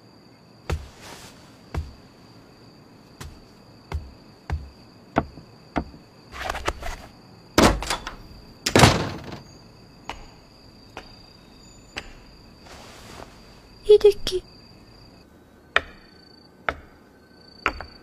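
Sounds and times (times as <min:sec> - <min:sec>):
footsteps: 0:00.7 - 0:02.1, 0:03.2 - 0:06.0
sharp knocks: 0:03.2 - 0:06.0, 0:08.7 - 0:09.4
door rattle: 0:07.6 - 0:09.5
heavy door thuds: 0:07.6 - 0:09.5.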